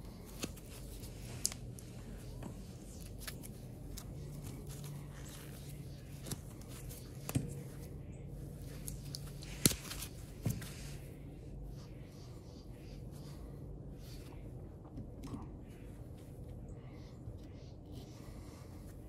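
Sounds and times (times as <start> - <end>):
handling rustle: 0.0 - 11.7.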